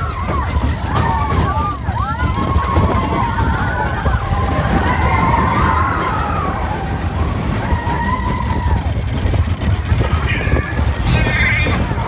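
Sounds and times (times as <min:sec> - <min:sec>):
ride car heavy rumble: 0:00.0 - 0:12.0
wind noise: 0:00.0 - 0:12.0.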